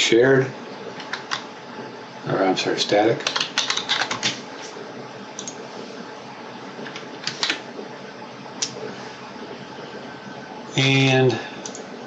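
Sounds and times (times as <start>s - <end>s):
room noise hiss: 0.0s - 12.0s
keyboard and mouse clicks: 5.4s - 5.6s, 11.6s - 11.8s.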